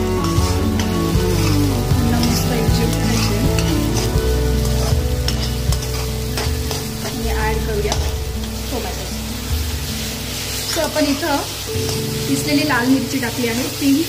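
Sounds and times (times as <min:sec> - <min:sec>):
metal spatula scraping a pan: 0:00.0 - 0:08.9
background music with held tones: 0:00.0 - 0:14.0
onions sizzling in oil: 0:00.0 - 0:14.0.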